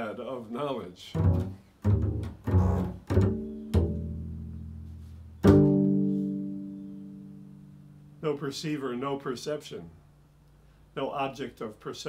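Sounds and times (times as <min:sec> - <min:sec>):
double bass plucked notes: 0:01.1 - 0:08.2.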